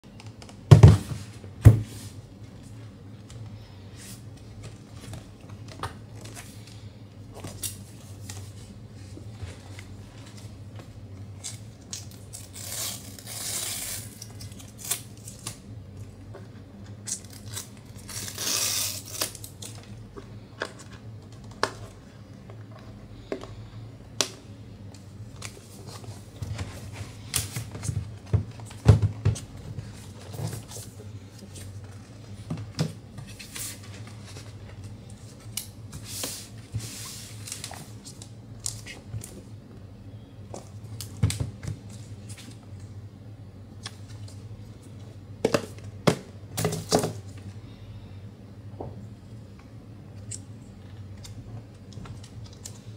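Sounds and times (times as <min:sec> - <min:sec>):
paper seal strips ripping: 0:12.2 - 0:15.4.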